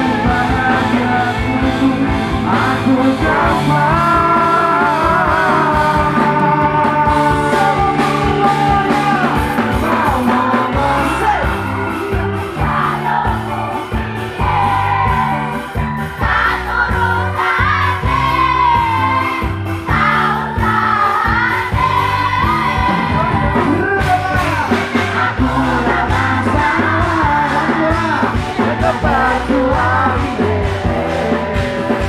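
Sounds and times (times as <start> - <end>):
person singing: 0.0 - 13.1, 22.8 - 32.0
crowd singing along: 0.0 - 32.0
live band music over loudspeakers: 0.0 - 32.0.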